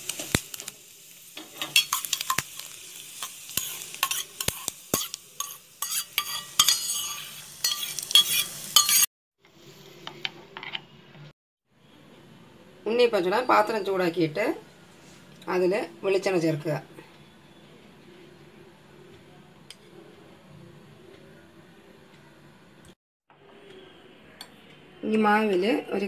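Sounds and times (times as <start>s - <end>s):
food sizzling in hot fat: 0.0s - 10.2s
spoon clinking and scraping a pan: 1.4s - 9.1s.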